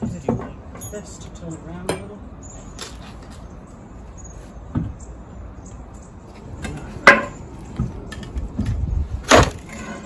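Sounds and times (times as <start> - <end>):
metal clanks from truck wheel: 6.6 - 7.5.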